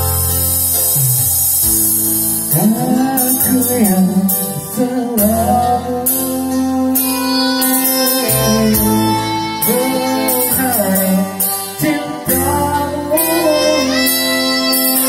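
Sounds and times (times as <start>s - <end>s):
electric guitar: 0.0s - 15.0s
electronic keyboard: 0.0s - 15.0s
man singing slow song: 2.5s - 15.0s.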